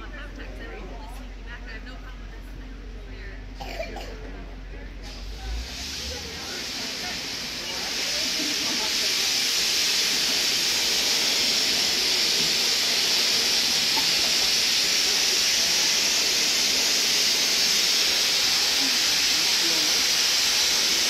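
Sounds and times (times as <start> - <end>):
steady hiss: 5.1 - 21.0.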